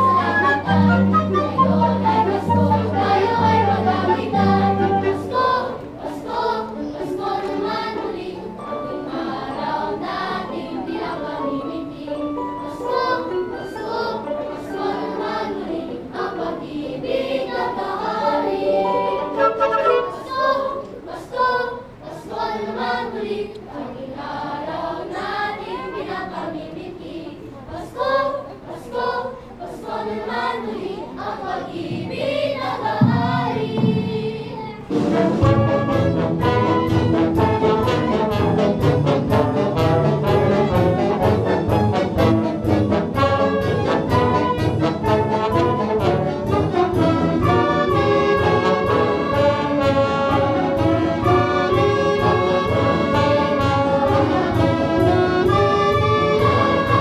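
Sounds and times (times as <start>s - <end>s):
orchestra playing: 0.0s - 10.4s, 18.2s - 20.8s, 34.9s - 57.0s
choir singing: 0.0s - 57.0s.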